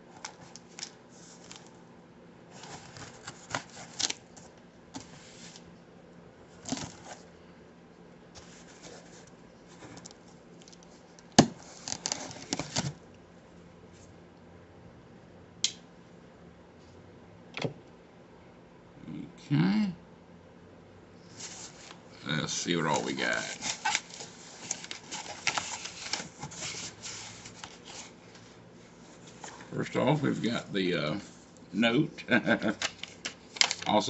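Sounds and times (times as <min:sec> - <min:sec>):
cardboard and tape rustling: 0:02.5 - 0:05.7, 0:06.6 - 0:07.3, 0:08.4 - 0:13.0, 0:22.9 - 0:31.4.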